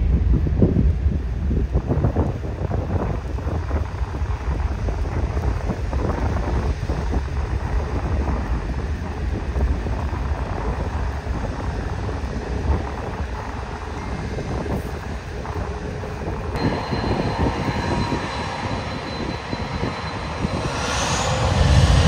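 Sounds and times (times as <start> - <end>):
wind buffeting microphone: 0.0 - 22.0
jet engines rumbling: 10.3 - 22.0.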